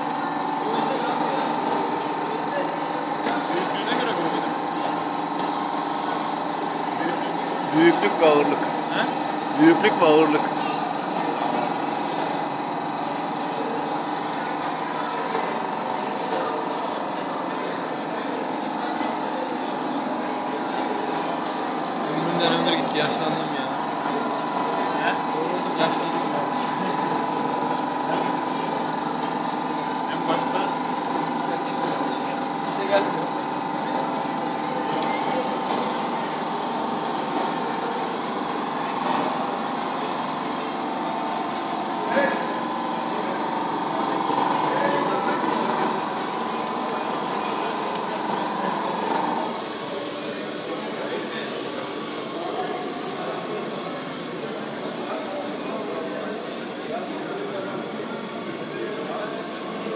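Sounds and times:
small motors whirring: 0.0 - 58.7.

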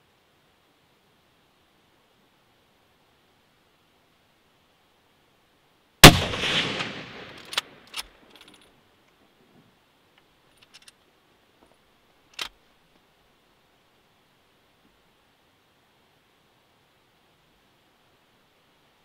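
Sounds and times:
rifle shot with rolling echo: 6.0 - 7.9.

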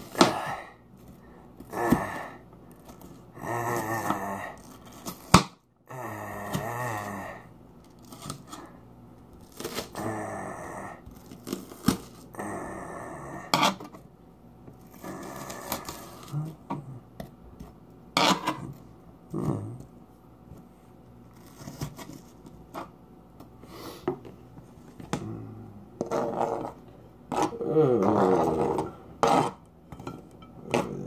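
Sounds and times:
blade scraping through onion: 2.8 - 5.4, 18.2 - 18.8, 21.3 - 22.9, 26.0 - 31.0.

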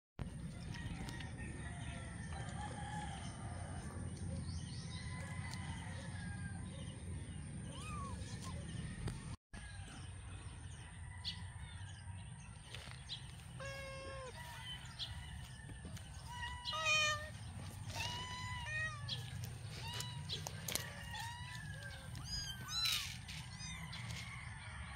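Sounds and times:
kittens mewing: 13.5 - 14.4, 16.2 - 23.9.

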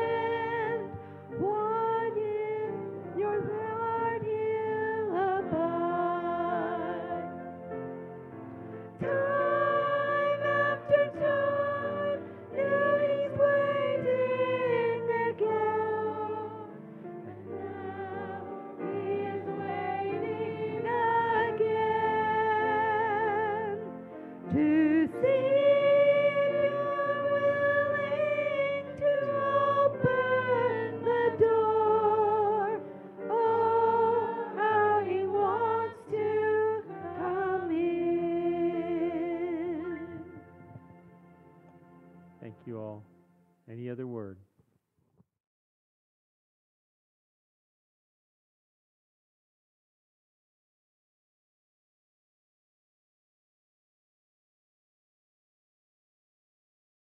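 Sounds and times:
person singing a hymn: 0.0 - 41.0
instrumental accompaniment: 0.0 - 44.4.

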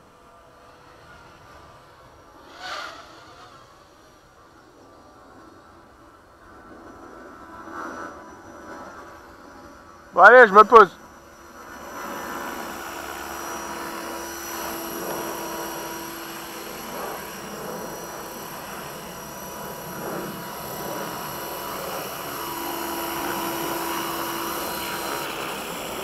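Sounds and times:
model helicopter motor whine: 0.0 - 26.0
humming tone: 11.0 - 26.0.

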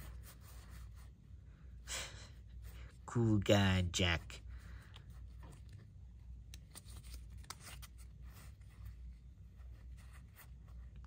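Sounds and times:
low steady hum: 0.0 - 11.0
playing cards sliding: 6.5 - 8.7.

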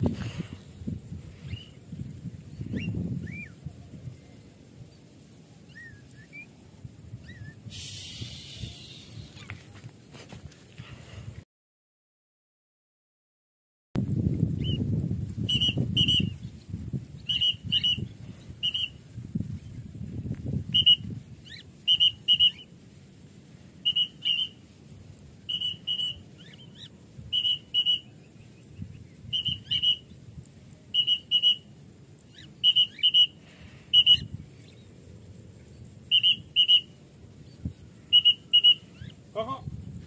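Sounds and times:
wind rumble on microphone: 0.0 - 11.4, 14.0 - 22.4, 26.1 - 30.9, 34.2 - 38.1, 38.8 - 40.0
whistle short high pips: 15.4 - 16.4, 17.3 - 19.0, 20.7 - 22.7, 23.8 - 24.6, 25.5 - 26.5, 27.3 - 28.1, 29.3 - 30.1, 31.0 - 31.7, 32.4 - 34.3, 36.1 - 37.0, 38.1 - 39.1.

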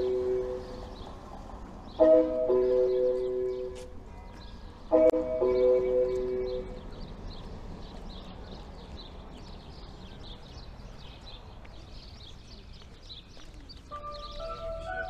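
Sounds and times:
small birds chirping: 5.5 - 15.0.

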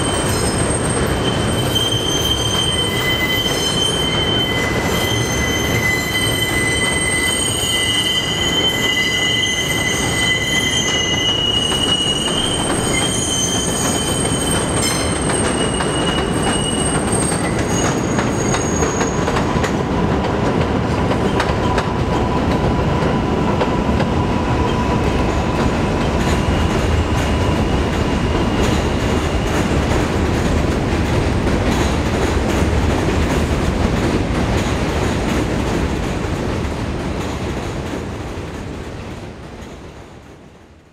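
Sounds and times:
train wheels squealing: 0.0 - 20.0, 21.2 - 29.8
train rumble and rail clatter: 0.0 - 40.9.

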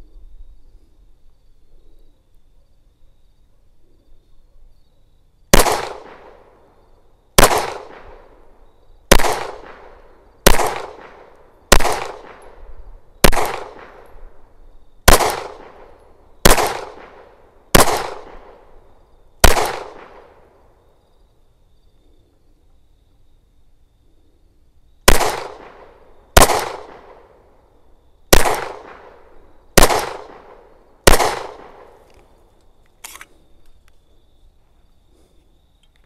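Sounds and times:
pistol shots with echo: 5.5 - 6.6, 7.4 - 8.4, 9.1 - 12.6, 13.2 - 14.1, 15.0 - 18.7, 19.4 - 20.5, 25.1 - 27.4, 28.3 - 32.0.

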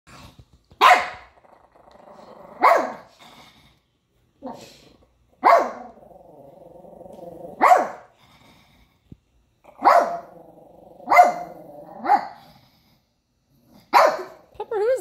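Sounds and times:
small dog barking: 0.8 - 1.3, 2.6 - 3.1, 5.4 - 6.0, 7.6 - 8.1, 9.8 - 10.3, 11.0 - 12.4, 13.9 - 14.4
dog growling: 1.2 - 4.8, 5.6 - 9.0, 9.6 - 14.0.

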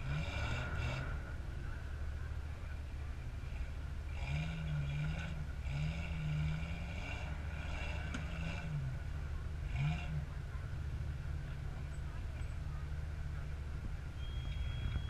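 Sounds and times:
off-road engine revving: 0.0 - 15.0.

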